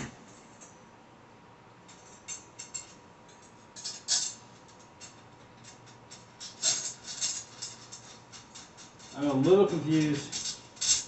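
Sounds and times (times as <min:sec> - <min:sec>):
metal dish rack parts clinking: 0:05.0 - 0:11.0.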